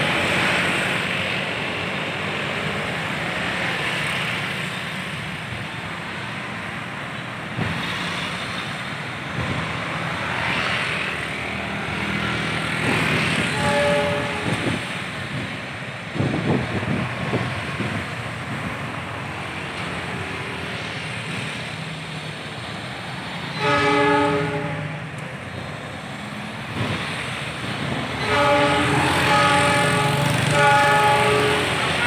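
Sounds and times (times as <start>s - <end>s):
cars and motorbikes passing: 0.0s - 32.0s
street traffic: 0.0s - 32.0s
locomotive horn chord: 13.4s - 14.8s, 23.6s - 25.1s, 28.2s - 32.0s.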